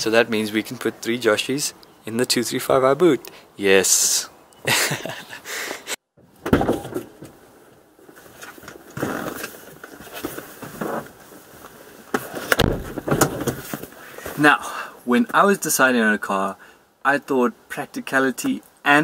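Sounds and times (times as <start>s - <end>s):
rustling: 6.8s - 14.4s.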